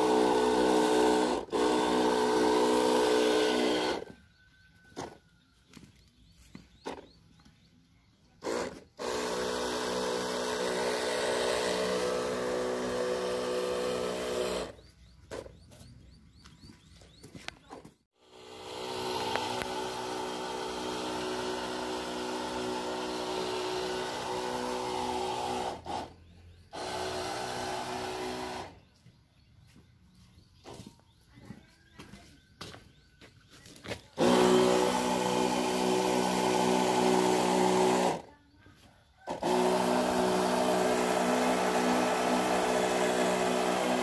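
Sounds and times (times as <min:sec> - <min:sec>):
pump motor humming: 0:00.0 - 0:05.2, 0:08.4 - 0:15.5, 0:18.2 - 0:28.8, 0:34.2 - 0:38.3, 0:39.2 - 0:44.0.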